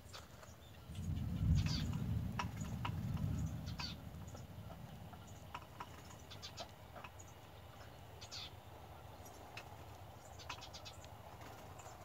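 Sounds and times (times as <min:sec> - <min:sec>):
nestling bird chirping: 0:00.0 - 0:12.0
low rumble: 0:00.8 - 0:05.5.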